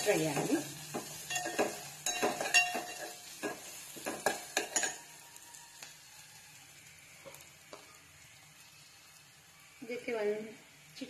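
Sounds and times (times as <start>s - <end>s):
faint frying sizzle: 0.0s - 11.0s
metal spoon scraping a pot: 0.4s - 5.1s.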